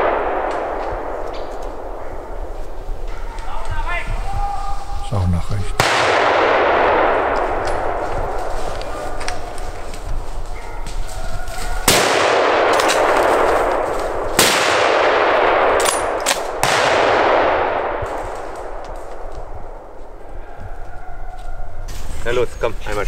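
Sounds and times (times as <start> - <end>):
rifle shots echoing: 0.0 - 3.3, 5.8 - 9.9, 11.8 - 20.2.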